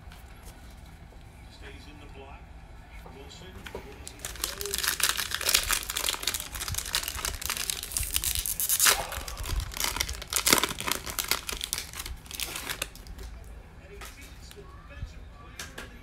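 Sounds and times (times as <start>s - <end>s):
foil wrapper crinkling: 3.9s - 13.4s.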